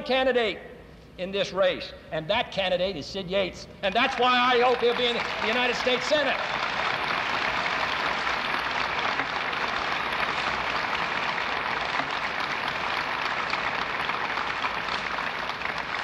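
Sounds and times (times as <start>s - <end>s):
large audience applauding: 3.9s - 16.0s.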